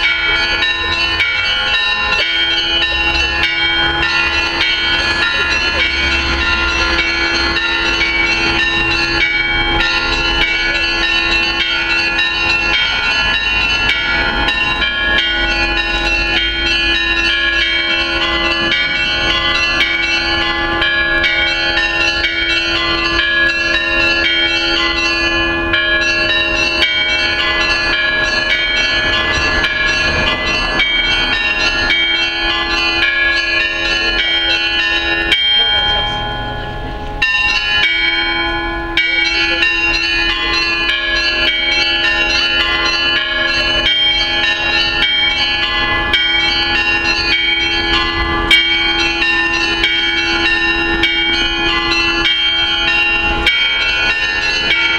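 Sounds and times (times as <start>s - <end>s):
church bells pealing: 0.0s - 54.9s
low bell tone: 0.0s - 54.9s.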